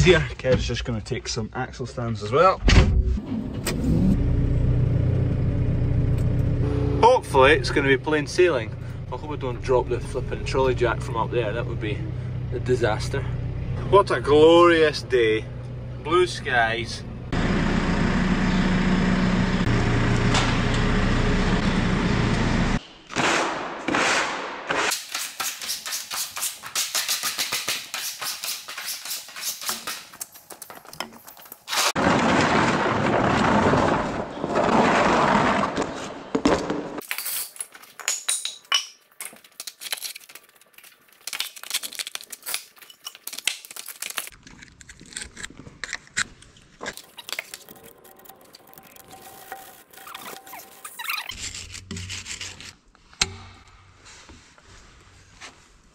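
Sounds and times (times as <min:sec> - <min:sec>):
diesel engine running: 0:03.2 - 0:22.8.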